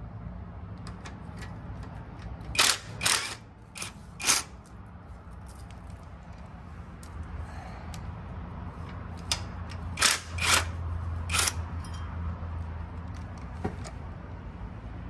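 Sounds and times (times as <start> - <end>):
ratchet clicking: 2.2 - 4.6, 9.2 - 11.6.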